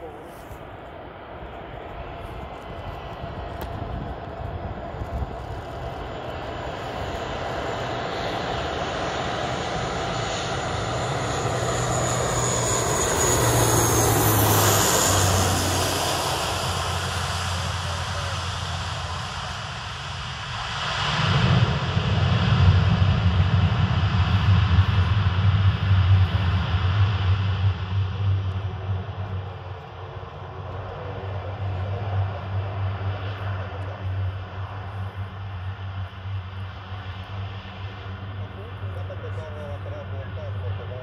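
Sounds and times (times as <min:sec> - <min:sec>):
high turbine whine: 0:00.0 - 0:41.0
turboprop aircraft flying overhead: 0:00.0 - 0:41.0
low rumble: 0:01.8 - 0:41.0.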